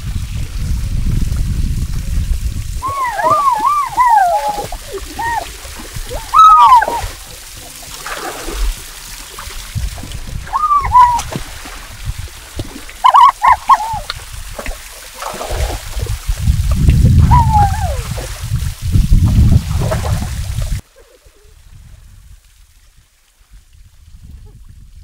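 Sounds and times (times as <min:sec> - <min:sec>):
water splashing: 0:00.0 - 0:21.5
high squealing calls: 0:02.8 - 0:07.2, 0:10.5 - 0:11.3, 0:13.0 - 0:14.1, 0:17.3 - 0:18.0.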